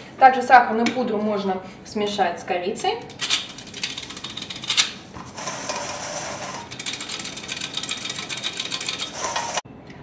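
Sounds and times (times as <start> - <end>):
flour sifter clicking rattle: 3.2 - 9.6.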